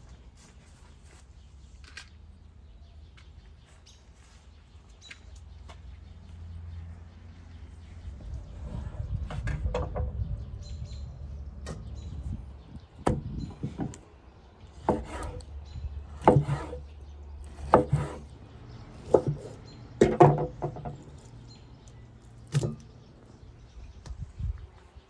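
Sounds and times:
knife knocking on wooden board: 20.0 - 21.0.

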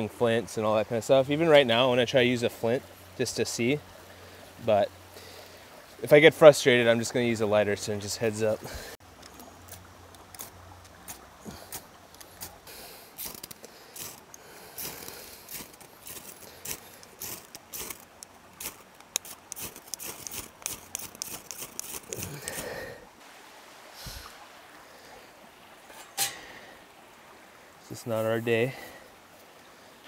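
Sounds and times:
ferro rod scraping: 13.2 - 22.9.

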